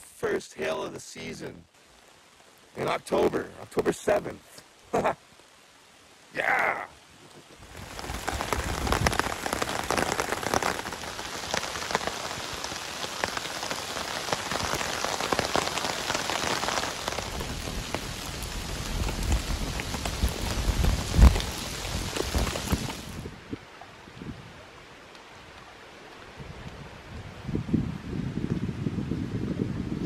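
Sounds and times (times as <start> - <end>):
hail clattering: 7.6 - 23.1.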